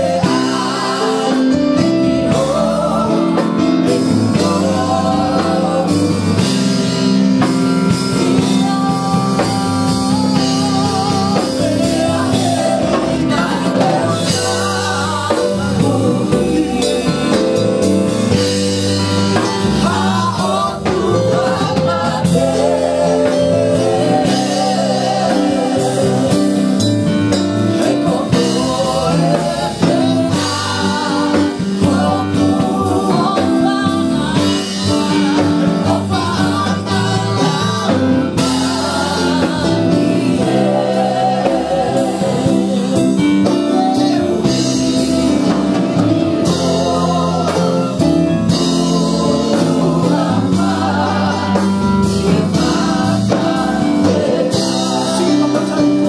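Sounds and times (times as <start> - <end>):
drum kit: 0.0 - 56.0
singers holding long notes: 46.6 - 56.0.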